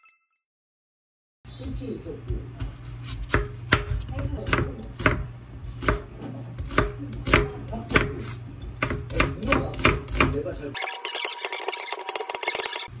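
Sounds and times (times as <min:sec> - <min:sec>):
knife tapping cutting board: 0:05.8 - 0:10.4.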